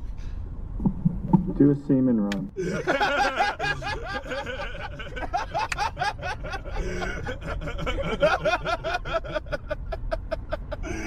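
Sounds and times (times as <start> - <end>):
people laughing together: 2.6 - 11.0.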